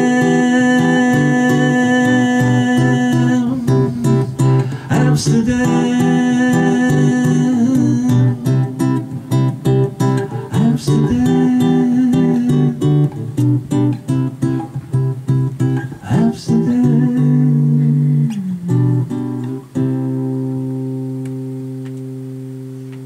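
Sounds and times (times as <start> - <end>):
acoustic guitar strummed: 0.0 - 23.0.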